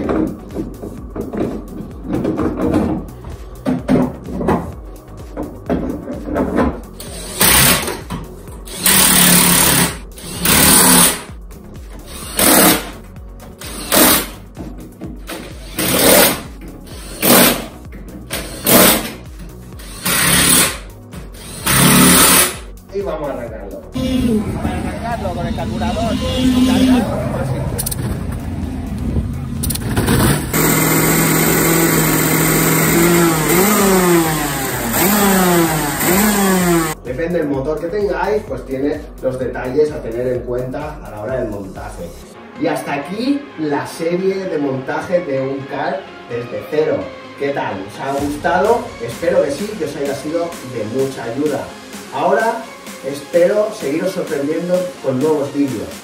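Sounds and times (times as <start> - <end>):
cordless drill bursts: 7.0 - 8.0, 8.6 - 11.3, 12.1 - 13.0, 13.6 - 14.4, 15.3 - 17.7, 18.3 - 19.2, 19.8 - 20.8, 21.4 - 22.7, 30.5 - 37.0
kart engine revving: 24.0 - 37.0.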